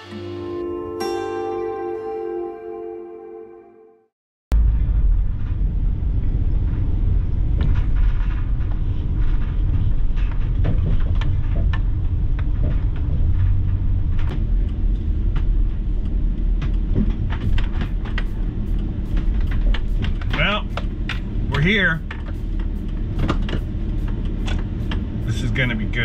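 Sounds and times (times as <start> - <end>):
road and engine rumble in cabin: 4.5 - 26.0.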